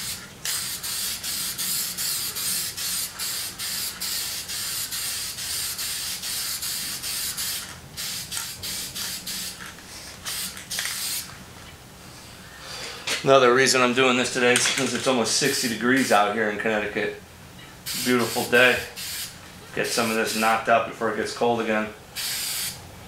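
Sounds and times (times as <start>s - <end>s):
spray paint can hissing: 0.0s - 11.3s, 17.9s - 19.3s, 22.2s - 22.8s.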